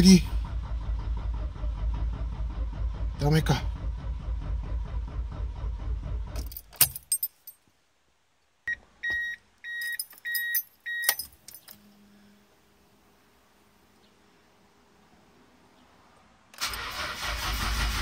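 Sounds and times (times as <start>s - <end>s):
car keys jangling: 6.4s - 7.6s, 9.2s - 11.9s.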